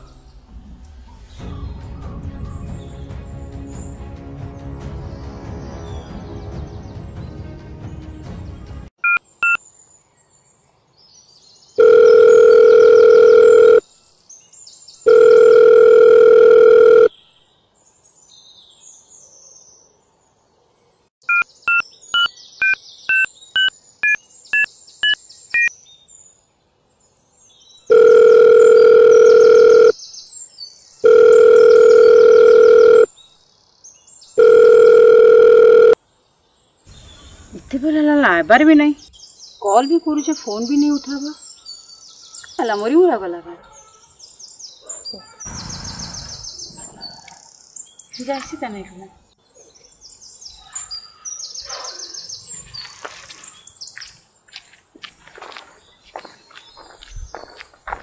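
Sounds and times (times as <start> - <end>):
music: 0.5 - 8.9
phone keypad beeps: 9.0 - 9.6, 11.8 - 13.8, 15.1 - 17.1, 21.2 - 25.7, 27.9 - 29.9, 31.1 - 33.1, 34.4 - 36.0
phone ringing tone: 11.8 - 13.8, 15.1 - 17.1, 27.9 - 30.0, 31.0 - 33.1, 34.4 - 36.0.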